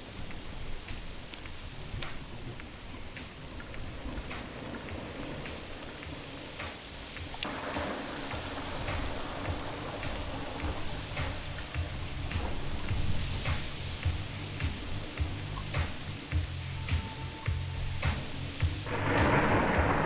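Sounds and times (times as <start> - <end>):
rain-like hiss: 0.0 - 20.0
low bass notes: 8.3 - 20.0.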